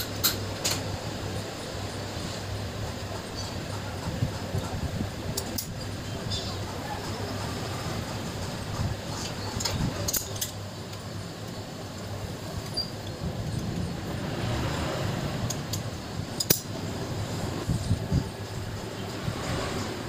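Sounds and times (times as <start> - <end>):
steady low hum: 0.0 - 20.0
metallic tool clinks and clicks: 16.4 - 16.7.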